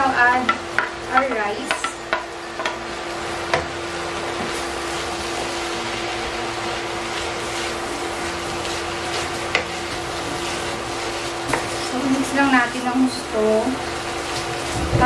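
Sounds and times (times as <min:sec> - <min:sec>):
food sizzling in a frying pan: 0:00.0 - 0:15.0
spatula knocking against pan: 0:00.4 - 0:02.8
spatula stirring food: 0:00.4 - 0:13.1.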